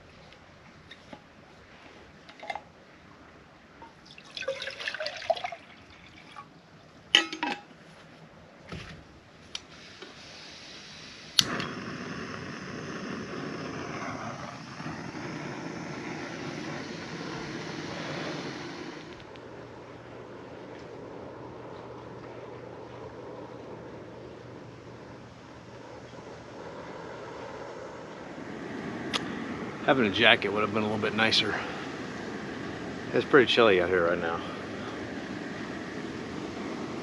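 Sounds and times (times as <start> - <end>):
water pouring into metal mug: 4.0 - 6.5.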